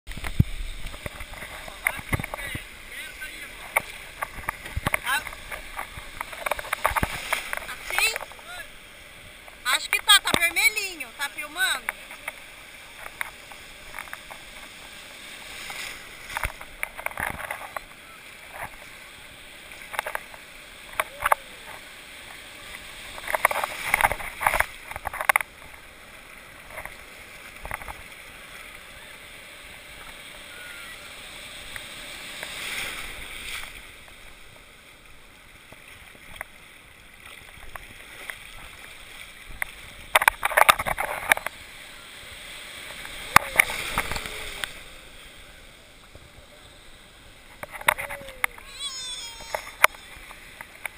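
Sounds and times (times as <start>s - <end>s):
water sloshing and splashing: 0.1s - 28.8s, 31.3s - 46.4s
breaking waves: 0.1s - 50.9s.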